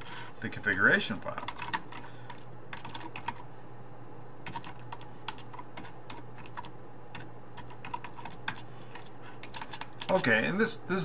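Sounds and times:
computer keyboard typing: 0:01.1 - 0:03.4, 0:04.4 - 0:10.4.

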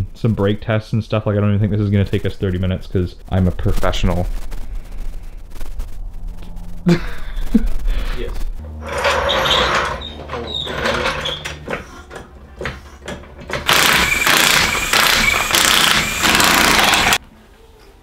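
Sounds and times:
floor jack clanking and rattling: 0:08.8 - 0:17.2
cordless impact wrench running: 0:13.6 - 0:17.2.

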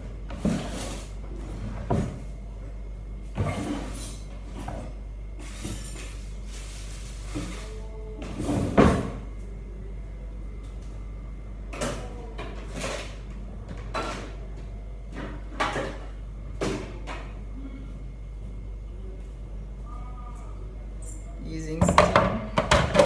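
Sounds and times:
cupboard doors and cookware knocking: 0:21.8 - 0:23.0.

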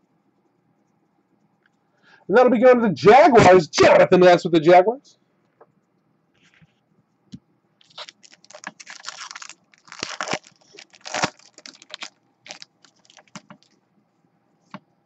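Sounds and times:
foil wrapper crinkling: 0:07.8 - 0:13.8.

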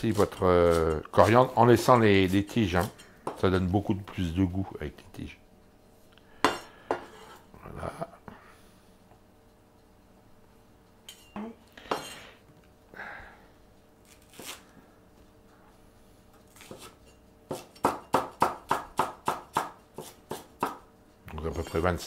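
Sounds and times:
cleaver chopping on wooden board: 0:17.5 - 0:20.8.

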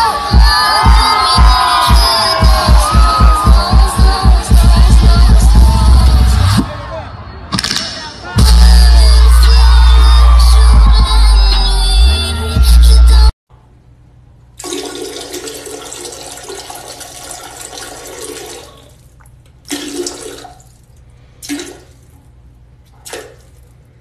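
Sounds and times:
toilet flushing: 0:14.6 - 0:19.0, 0:19.6 - 0:20.8.

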